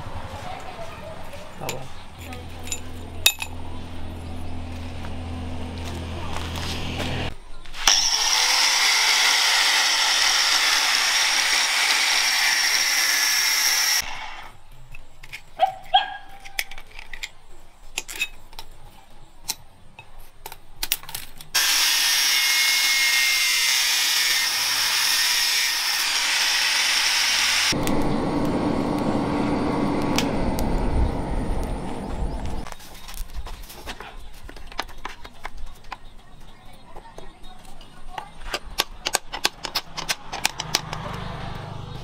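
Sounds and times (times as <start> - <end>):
metal clinks and knocks: 1.6 - 3.7
angle grinder cutting steel: 5.1 - 14.6, 21.6 - 31.0
low steady rumble: 27.8 - 32.7.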